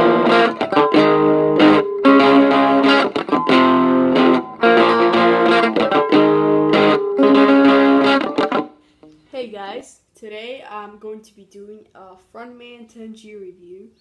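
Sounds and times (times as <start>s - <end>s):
electric guitar playing chords: 0.0s - 9.3s.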